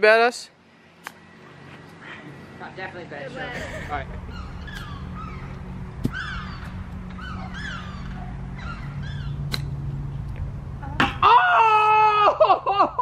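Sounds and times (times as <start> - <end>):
steady low hum: 0.4 - 13.0
bird calling: 3.4 - 9.8
golf club hitting ball clicks: 9.4 - 10.5.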